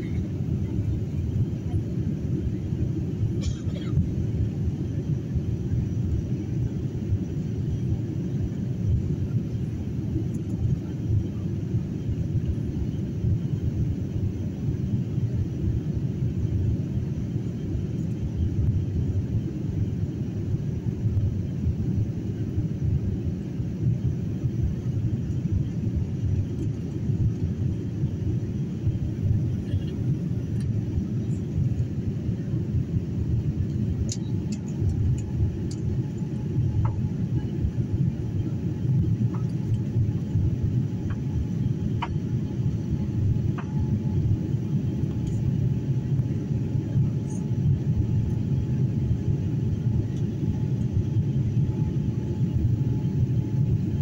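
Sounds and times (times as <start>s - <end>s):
airliner cabin rumble: 0.0s - 54.0s.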